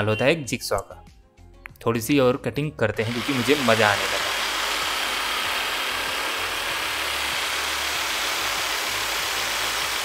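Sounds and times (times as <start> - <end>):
jigsaw cutting plywood: 3.0 - 10.0.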